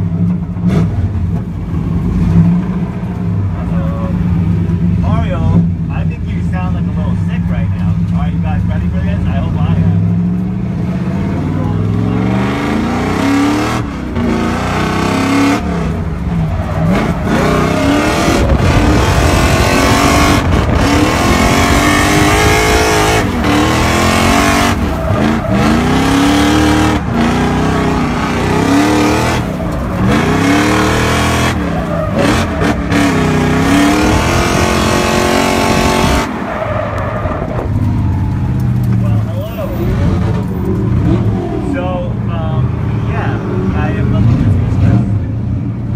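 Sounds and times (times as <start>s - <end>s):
car engine revving hard: 9.3s - 37.7s.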